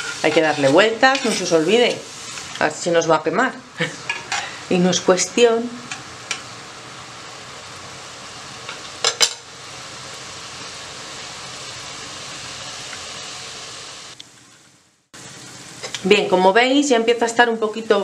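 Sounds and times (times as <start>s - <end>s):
onion sizzling in oil: 0.0s - 18.0s.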